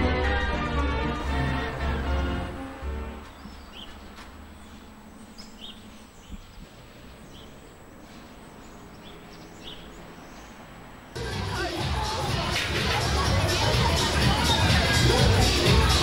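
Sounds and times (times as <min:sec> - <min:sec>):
small bird chirping: 0:03.2 - 0:10.7.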